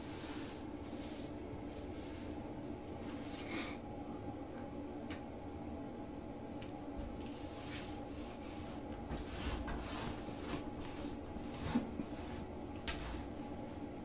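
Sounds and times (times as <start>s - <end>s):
rug swishing across tile floor: 0.0s - 2.4s, 7.2s - 13.8s.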